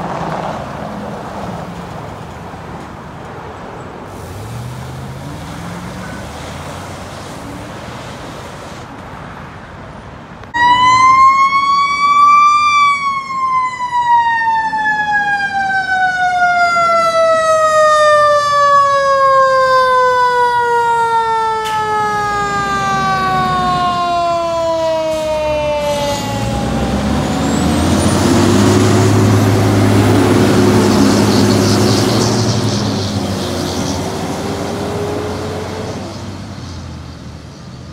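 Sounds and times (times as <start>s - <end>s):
traffic noise: 0.0s - 37.9s
truck engine revving: 4.1s - 8.6s, 21.9s - 37.5s
fire engine siren: 10.5s - 37.8s.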